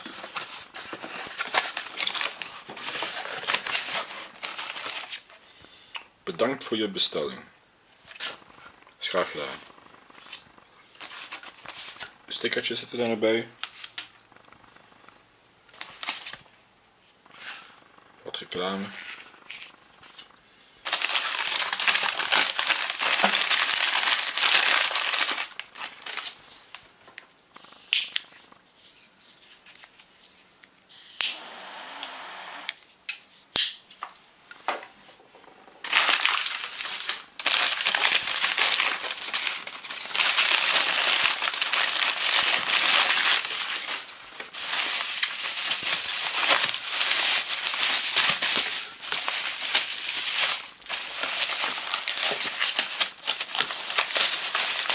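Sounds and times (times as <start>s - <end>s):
bubble wrap crinkling: 0.0s - 5.4s, 8.0s - 12.6s, 15.7s - 16.6s, 18.9s - 30.4s, 35.8s - 54.9s
paper rustling and crinkling: 0.0s - 5.4s, 8.0s - 12.6s, 15.7s - 17.2s, 18.9s - 30.5s, 35.8s - 54.9s.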